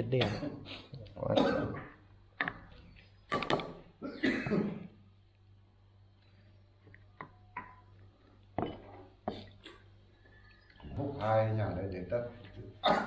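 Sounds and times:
person coughing: 0.2s - 0.6s, 1.3s - 1.9s, 4.0s - 4.9s, 12.8s - 13.0s.

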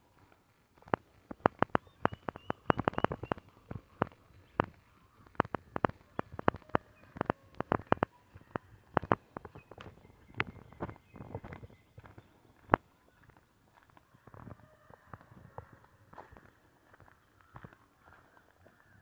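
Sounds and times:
faint bird calls: 1.3s - 13.3s.

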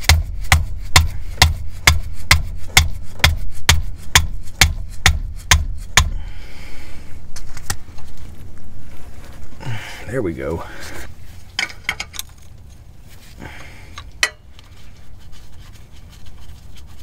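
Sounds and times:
mallet striking wrench: 0.0s - 6.2s.

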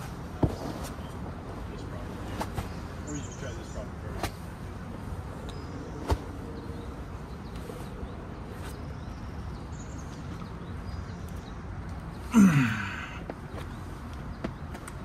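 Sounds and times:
man grunting with effort: 12.3s - 13.2s.

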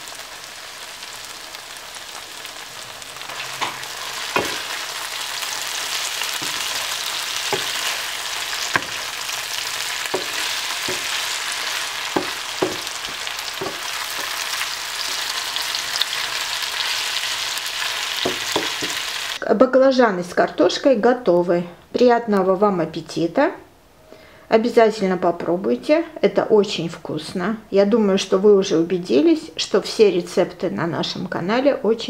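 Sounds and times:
vegetables sizzling in oil: 0.0s - 19.4s
wooden spatula scraping pan: 3.3s - 5.0s, 5.7s - 16.5s, 18.2s - 19.2s.

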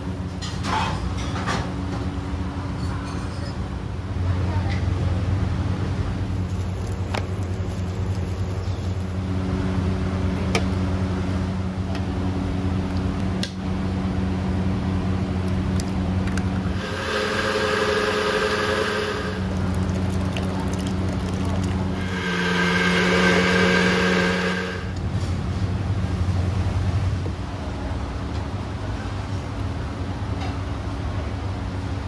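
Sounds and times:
kitchen machine hum: 14.5s - 25.3s
rushing noise: 16.7s - 20.2s, 21.9s - 25.0s.

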